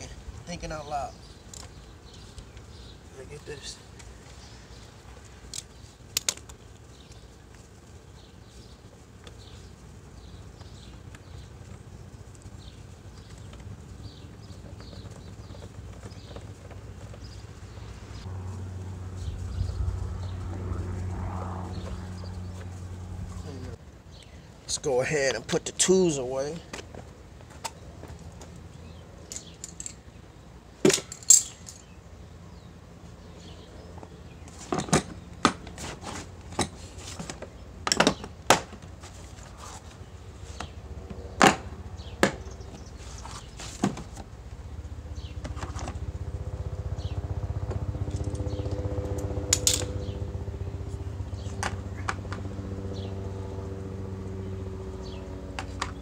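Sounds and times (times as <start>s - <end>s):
engine hum: 0.0s - 56.0s
metal tools clinking: 29.3s - 30.0s, 30.9s - 31.9s.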